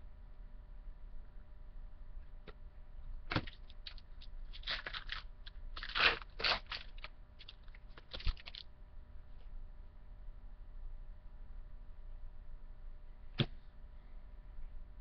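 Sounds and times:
card pack wrapper crinkling: 3.3 - 8.6.

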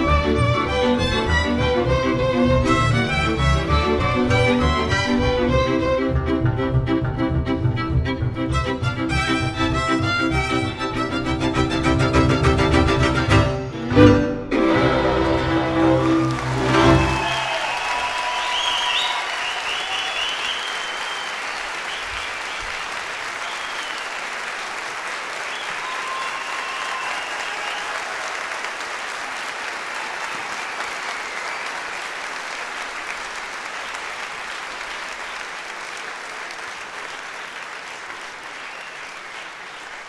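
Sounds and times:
audience applauding: 0.0 - 6.1, 14.7 - 40.0
whistles and calls: 17.0 - 22.8, 23.4 - 24.2, 25.5 - 27.9, 38.6 - 39.9.

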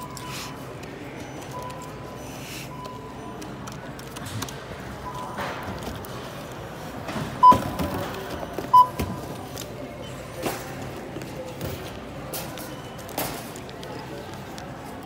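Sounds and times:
checkout scanner beeps: 0.0 - 15.0
store background noise: 0.0 - 15.0.

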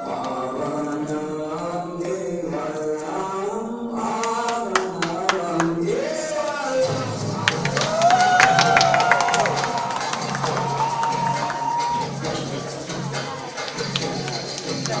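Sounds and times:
group chanting in unison: 0.0 - 8.5.

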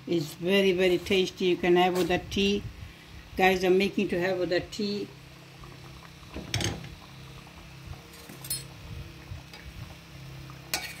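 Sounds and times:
faint steady hiss: 0.0 - 11.0
metal ladle clinking on pot: 8.2 - 8.7.

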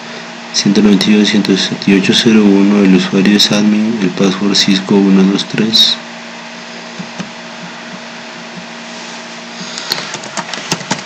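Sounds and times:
computer keyboard typing: 10.1 - 11.0.

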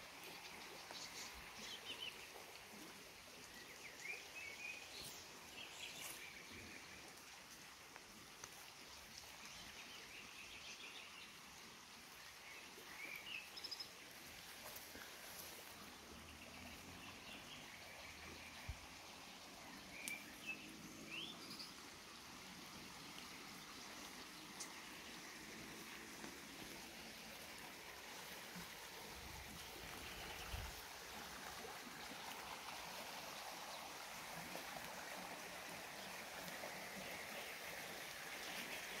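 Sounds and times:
flowing water hiss: 0.0 - 39.0
songbirds chirping faintly: 0.0 - 39.0.

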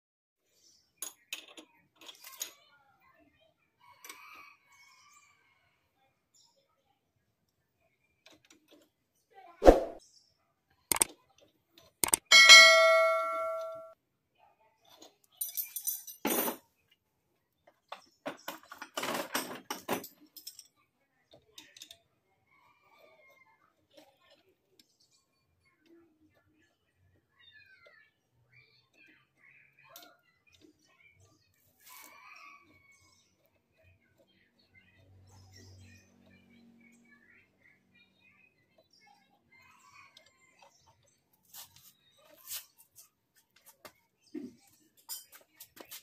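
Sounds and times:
steel tools clinking on metal: 12.0 - 13.9.

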